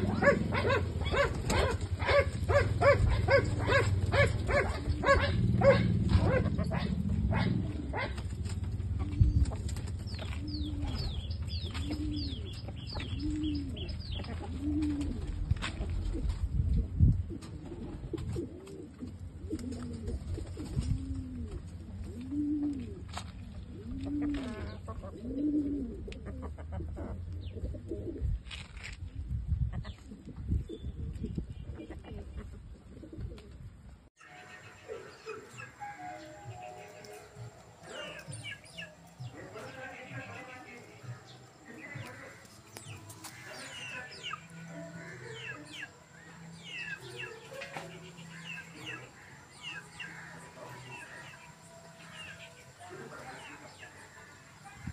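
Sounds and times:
birds chirping rapidly: 0.0s - 15.3s, 34.2s - 54.9s
chickens clucking: 0.0s - 16.4s, 17.3s - 28.2s, 31.6s - 33.6s, 34.3s - 54.9s
pigeon cooing: 0.0s - 28.4s, 30.0s - 33.7s, 34.3s - 54.9s
low bumps and scuffs: 8.0s - 18.4s.

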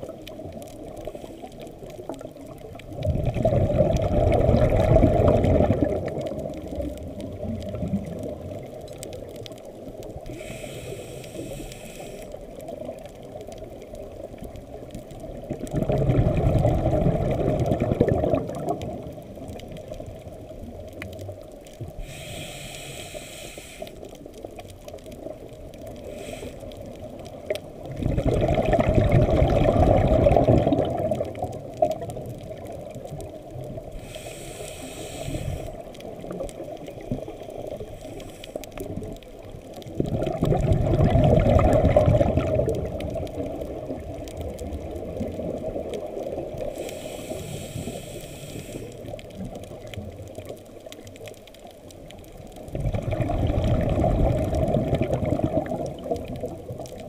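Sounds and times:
regulator inhale hiss: 1.0s - 2.2s, 10.1s - 12.6s, 21.9s - 24.3s, 25.8s - 27.1s, 33.8s - 39.1s, 46.5s - 49.5s
exhaled bubbles rushing: 2.2s - 8.9s, 15.2s - 20.4s, 27.8s - 33.9s, 39.8s - 46.8s, 52.6s - 57.0s.

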